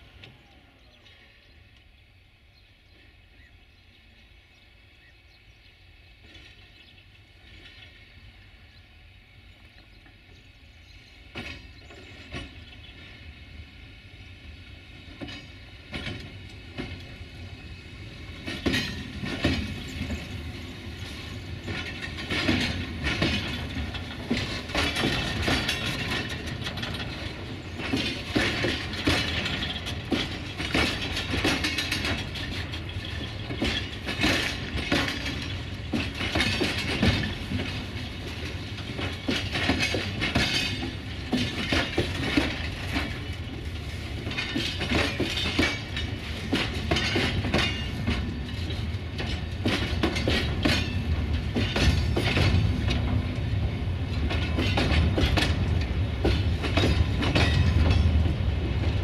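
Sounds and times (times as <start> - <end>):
wheels clicking over rail joints: 9.6 - 59.0
freight wagons rolling: 18.4 - 59.0.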